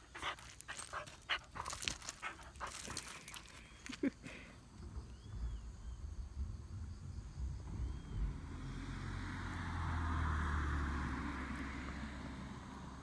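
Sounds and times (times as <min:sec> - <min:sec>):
vehicle passing by: 0:07.4 - 0:13.0.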